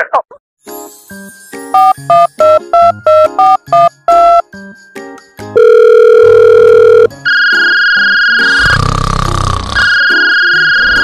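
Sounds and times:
telephone keypad beeps: 5.6s - 7.1s.

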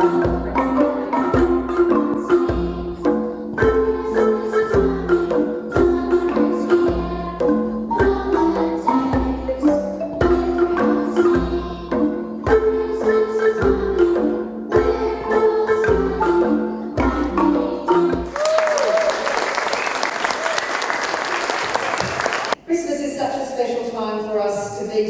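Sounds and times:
marimbas playing a tune: 0.0s - 19.1s.

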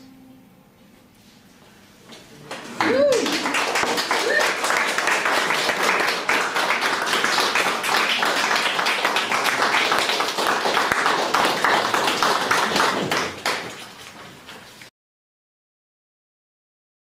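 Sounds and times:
audience applauding: 2.6s - 14.0s.

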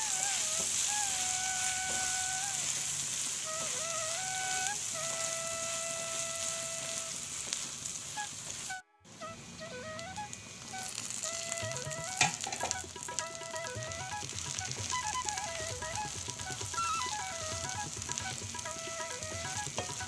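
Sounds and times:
coconut sizzling in frying pan: 0.0s - 20.0s
soft flute-like melody: 0.0s - 20.0s.

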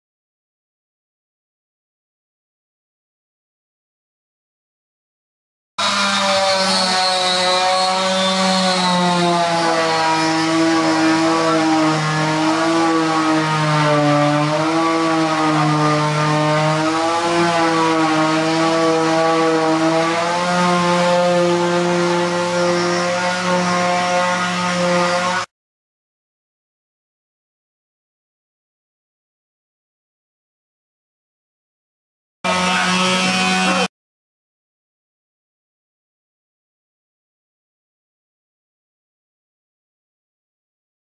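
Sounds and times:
motor running: 32.5s - 33.9s.

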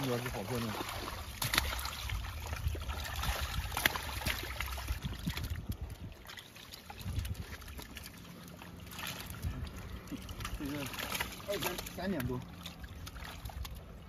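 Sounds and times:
fish and net slapping: 0.0s - 14.0s
fish thrashing and splashing: 0.0s - 14.0s
water trickling: 0.0s - 14.0s.

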